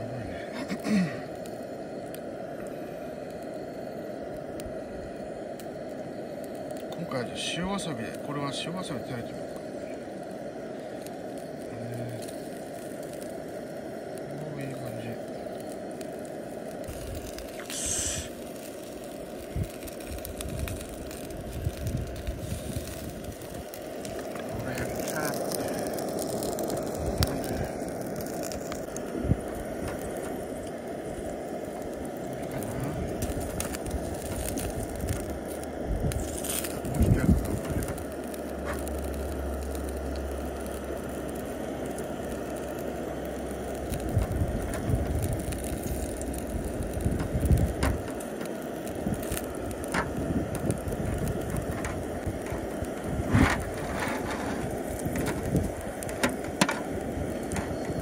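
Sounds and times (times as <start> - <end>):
gas burner running: 0.0 - 58.0
steak sizzling with crackles: 0.0 - 58.0
low rumbling: 15.2 - 58.0.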